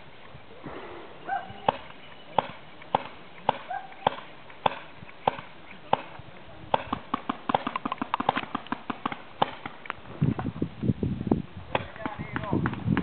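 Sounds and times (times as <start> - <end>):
paintball markers firing: 1.7 - 10.0.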